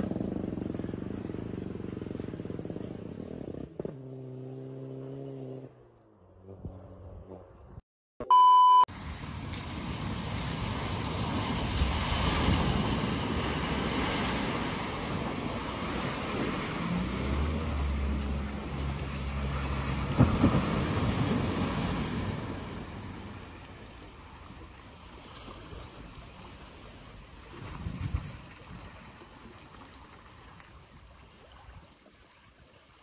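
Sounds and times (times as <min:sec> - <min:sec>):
low engine hum: 0:00.0 - 0:07.8, 0:08.9 - 0:31.4
electronic beep: 0:08.2 - 0:08.9
car splashing through water: 0:09.0 - 0:31.6.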